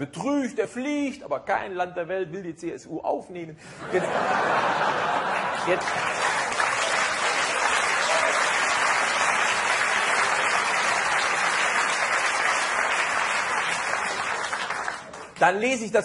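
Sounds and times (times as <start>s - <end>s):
audience applauding: 4.9s - 15.5s.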